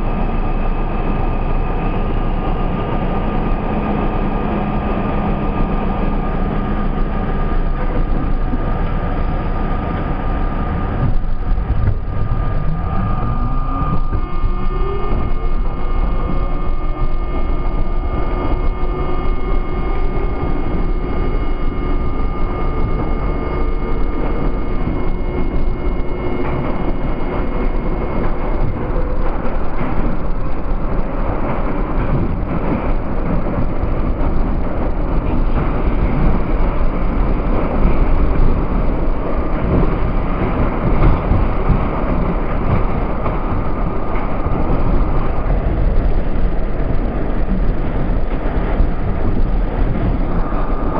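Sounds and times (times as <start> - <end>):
multi-tone whine: 0.0 - 50.9
subway wheels rumbling on rail: 0.0 - 50.9.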